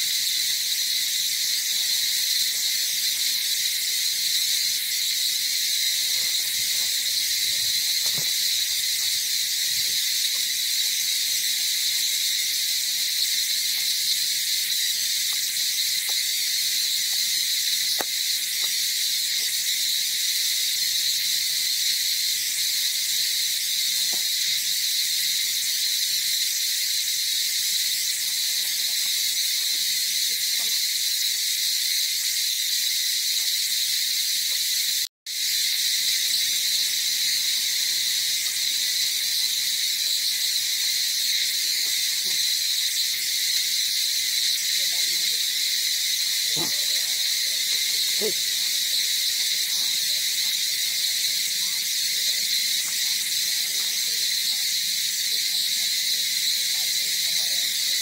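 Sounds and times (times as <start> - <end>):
insect chorus drone: 0.0 - 58.0.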